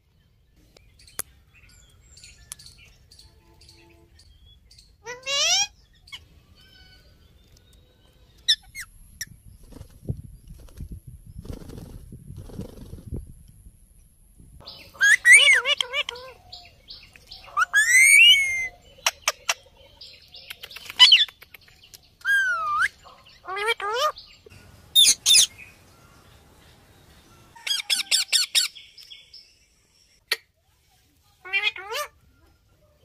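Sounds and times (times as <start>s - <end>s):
parakeets squawking and chattering: 3.6s - 7.2s, 14.6s - 21.4s, 22.2s - 25.8s, 31.4s - 32.2s.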